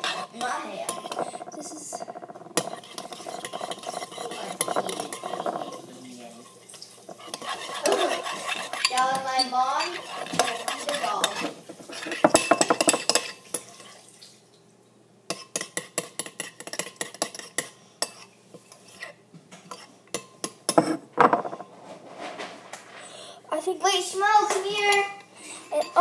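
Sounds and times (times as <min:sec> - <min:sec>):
spoon clinking against bowl: 0:00.0 - 0:06.1, 0:07.1 - 0:13.8
spoon stirring slime in a bowl: 0:00.0 - 0:14.0, 0:15.3 - 0:21.7, 0:24.4 - 0:26.0.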